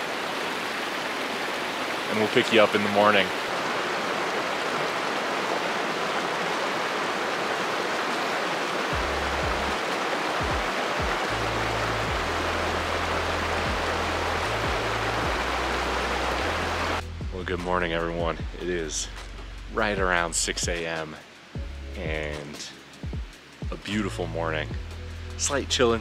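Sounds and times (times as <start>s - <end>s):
stream water rushing: 0.0s - 17.1s
background music with bass: 8.9s - 9.8s, 10.4s - 26.0s.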